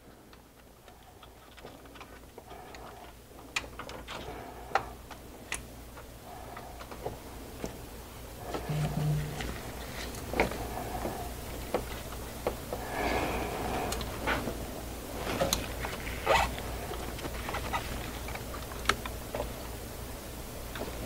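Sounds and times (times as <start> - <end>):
low steady hum: 7.4 - 11.8.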